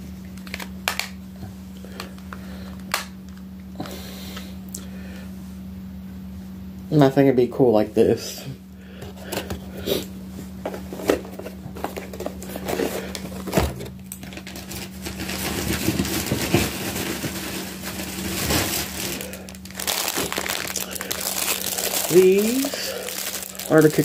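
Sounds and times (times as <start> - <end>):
steady low hum: 0.0 - 24.0
plastic packaging crinkling: 0.3 - 1.2, 10.7 - 24.0.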